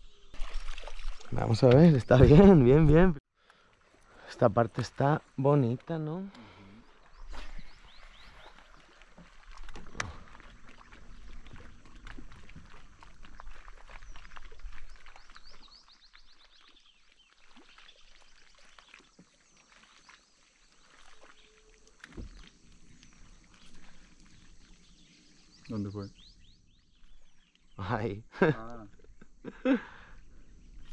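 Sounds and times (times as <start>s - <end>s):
small birds chirping: 4.1s - 9.1s, 10.0s - 30.9s
clicks and knocks in boat: 9.2s - 13.1s.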